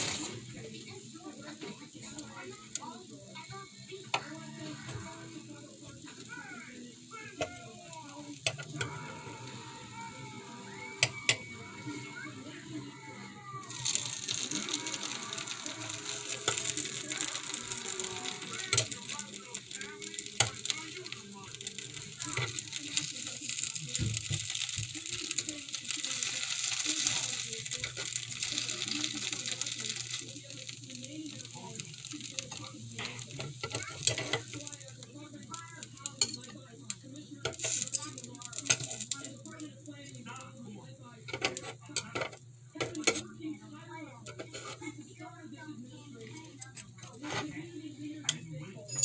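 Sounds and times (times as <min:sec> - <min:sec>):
fork and knife scraping metal plate: 0:44.3 - 0:44.9.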